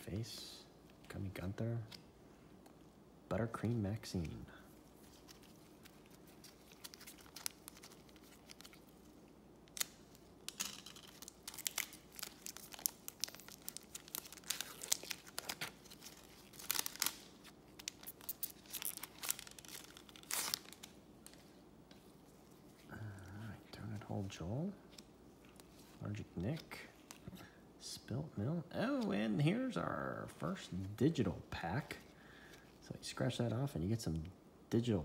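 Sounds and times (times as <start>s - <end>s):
foil wrapper crinkling and tearing: 5.1s - 21.4s.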